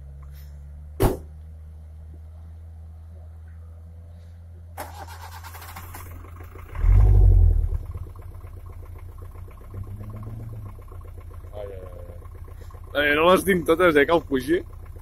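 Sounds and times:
engines revving under load: 0:04.1 - 0:08.4, 0:09.4 - 0:14.6.

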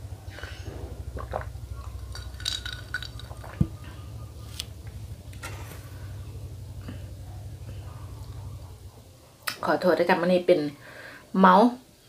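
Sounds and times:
person sipping a drink: 0:00.3 - 0:03.7.

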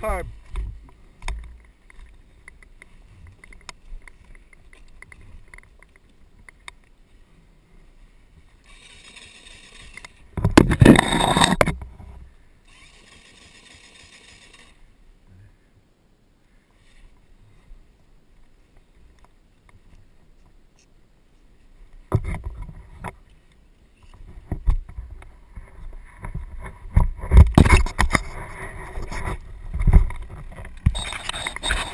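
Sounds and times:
knocks and rustling: 0:10.0 - 0:12.2, 0:24.1 - 0:31.9
loud scraping rush: 0:10.6 - 0:11.8
soft hissing: 0:12.2 - 0:22.1.

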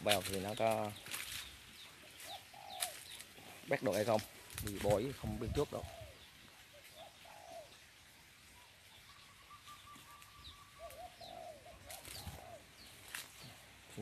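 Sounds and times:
doves cooing: 0:02.0 - 0:04.2, 0:04.8 - 0:07.8, 0:09.2 - 0:14.0
small high bird chirps: 0:08.6 - 0:13.1
bird trill: 0:09.0 - 0:12.7.

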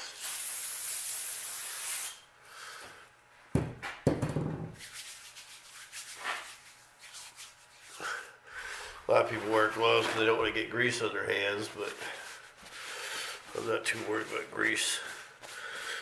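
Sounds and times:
rubbing hiss: 0:00.0 - 0:02.2
hands rustling on workbench: 0:04.7 - 0:08.2, 0:08.8 - 0:16.0.

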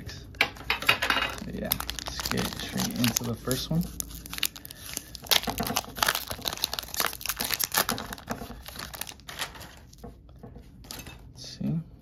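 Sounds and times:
foil wrapper crinkling: 0:01.0 - 0:10.0.

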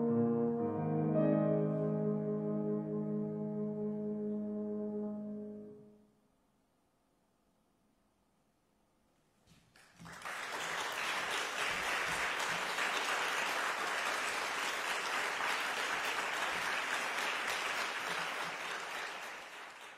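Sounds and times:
audience applause: 0:09.7 - 0:19.9.

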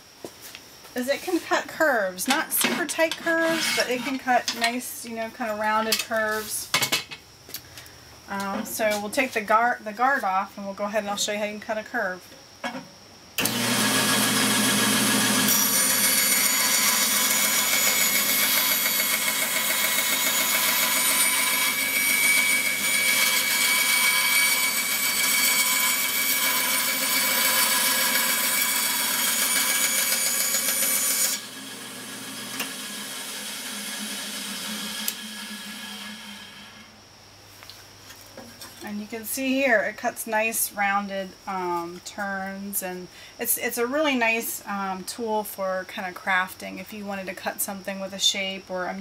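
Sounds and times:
band saw cutting: 0:13.4 - 0:36.9.

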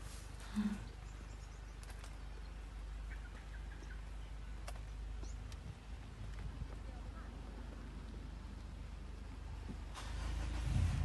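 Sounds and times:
steady low rumble: 0:00.0 - 0:11.0
faint bird chirps: 0:00.6 - 0:05.5.

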